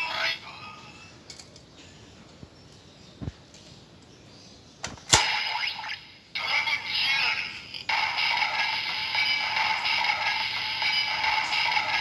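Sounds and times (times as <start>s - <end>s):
looping electronic toy sound: 5.2s - 12.0s.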